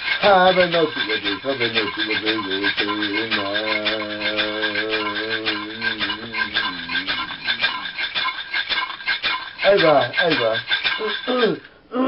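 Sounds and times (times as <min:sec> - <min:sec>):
hand-held rattle shaken: 0:00.0 - 0:11.7
man singing: 0:00.2 - 0:08.0.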